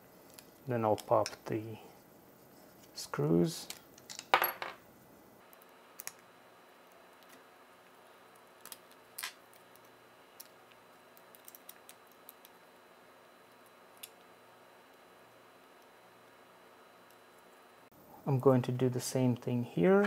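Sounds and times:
low room hiss: 0.0 - 20.0.

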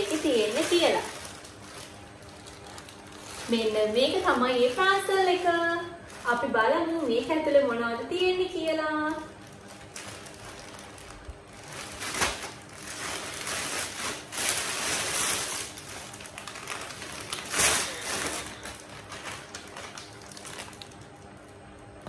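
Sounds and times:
packaging rustling and tearing: 0.0 - 7.3, 8.6 - 21.6
sharp packaging rips: 9.6 - 21.1.

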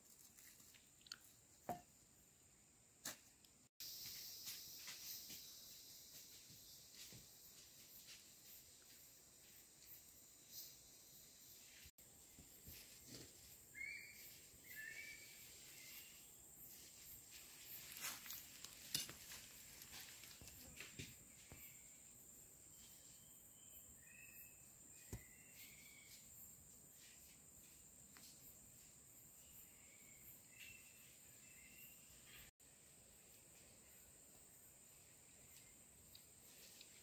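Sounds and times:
insect chirps: 3.8 - 37.0.

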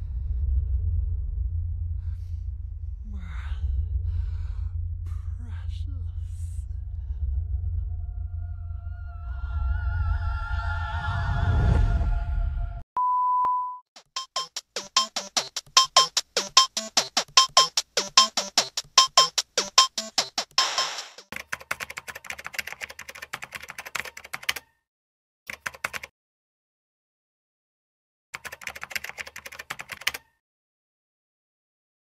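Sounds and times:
computer keyboard typing: 14.0 - 24.7, 25.5 - 26.1, 28.4 - 30.3.

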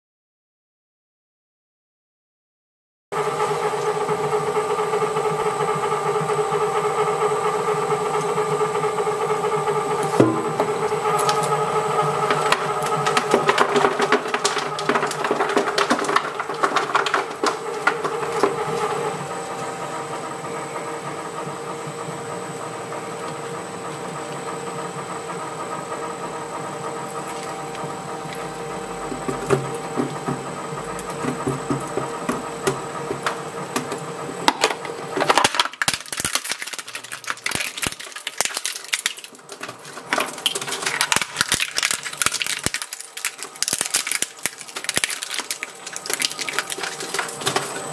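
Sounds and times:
shredder crackling and crunching: 3.2 - 47.9
shredder motor hum: 3.2 - 47.9
shredder crunching candle: 7.2 - 20.9, 22.4 - 47.9
shredder clicks: 9.9 - 19.7, 27.1 - 47.9.

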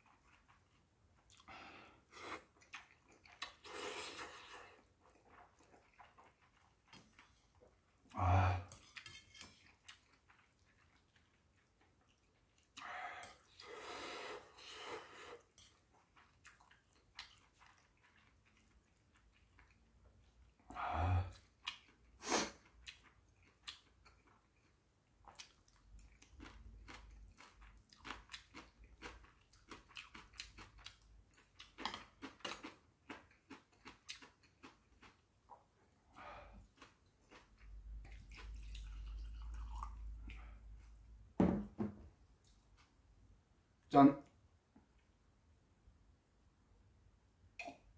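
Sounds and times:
wet chewing: 2.3 - 8.0, 8.7 - 12.8, 15.4 - 20.4, 21.3 - 35.7, 36.5 - 40.6
person slurping noodles: 3.5 - 4.9, 12.8 - 15.6, 22.2 - 22.6.

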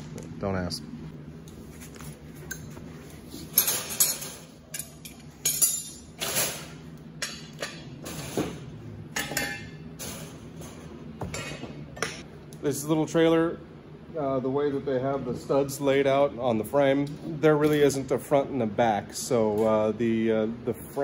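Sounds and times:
steel brackets clinking and clattering: 3.5 - 8.4.

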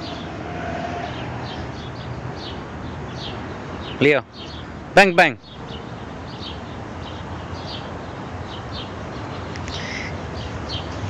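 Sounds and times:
outdoor background noise: 0.0 - 11.0
small bird chirping: 5.4 - 11.0.

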